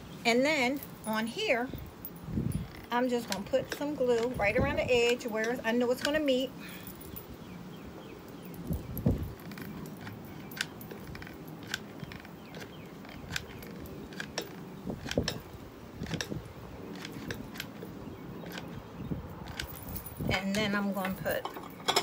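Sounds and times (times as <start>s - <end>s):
metal bracelets jingling: 0.6s - 22.0s.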